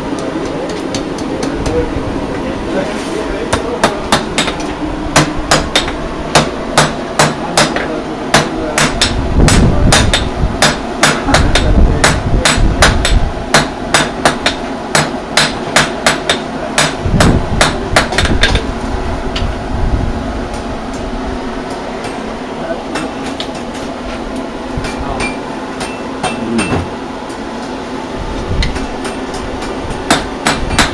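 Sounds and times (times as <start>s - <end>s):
hammer striking iron on anvil: 3.5s - 18.6s, 24.8s - 26.9s, 28.8s - 30.9s.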